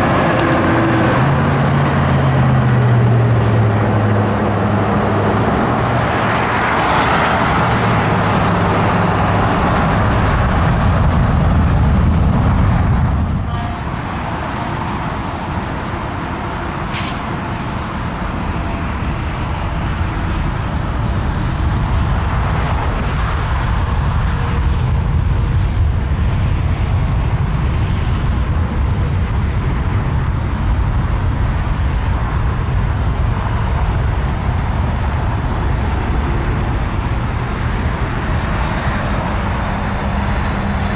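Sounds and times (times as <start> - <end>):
faint high engine whine: 0.0 - 40.9
jet engines rumbling: 0.0 - 40.9.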